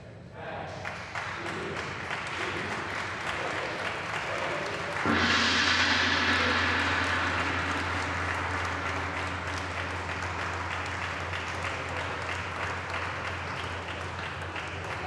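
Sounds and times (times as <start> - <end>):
group applauding: 0.8 - 15.0
gong ringing: 4.7 - 14.2.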